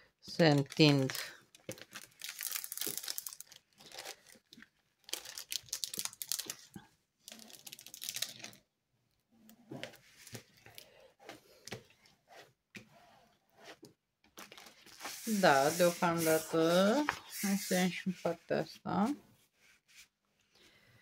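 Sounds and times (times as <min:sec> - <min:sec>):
plastic film crinkling: 0:00.3 - 0:08.6, 0:14.4 - 0:17.8
plastic scraper smoothing film: 0:14.8 - 0:18.0.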